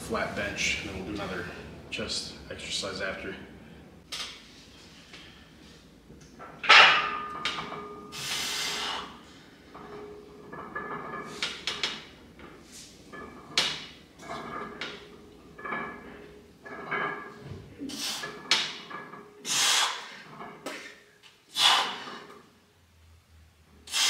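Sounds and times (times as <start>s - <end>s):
clinks of bar and iron plates: 6.2s - 8.1s, 9.7s - 19.4s
barbell clanking on rack hooks: 6.4s - 8.1s, 9.8s - 17.5s.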